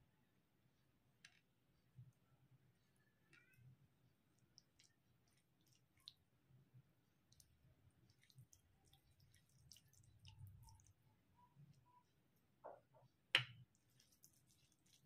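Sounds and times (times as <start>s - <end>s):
fingers squishing rice: 2.1s - 6.3s, 7.2s - 12.4s, 13.4s - 15.0s.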